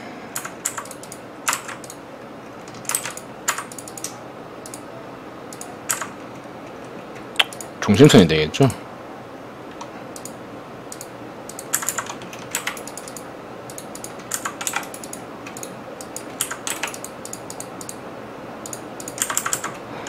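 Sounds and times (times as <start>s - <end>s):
steady low hiss: 0.0s - 20.0s
keyboard typing: 0.4s - 2.0s, 2.6s - 4.8s, 5.5s - 6.2s, 9.7s - 18.0s, 18.6s - 19.8s.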